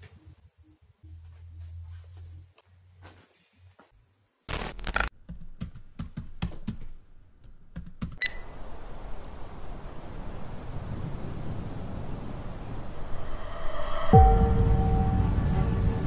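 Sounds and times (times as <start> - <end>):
keyboard typing: 4.5 - 8.2
steady low rumble: 8.7 - 16.0.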